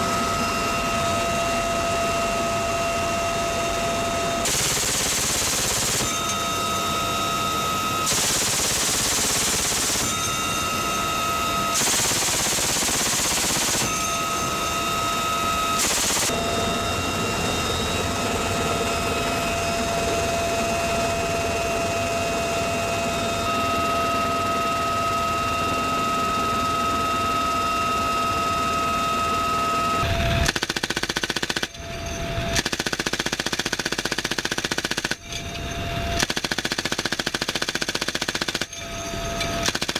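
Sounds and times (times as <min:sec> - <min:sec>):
helicopter high whine: 0:00.0 - 0:39.9
machine gun firing bursts: 0:04.4 - 0:06.3, 0:08.1 - 0:10.3, 0:11.8 - 0:14.1, 0:15.8 - 0:16.4, 0:30.5 - 0:31.7, 0:32.6 - 0:35.2, 0:36.2 - 0:38.7, 0:39.7 - 0:39.9.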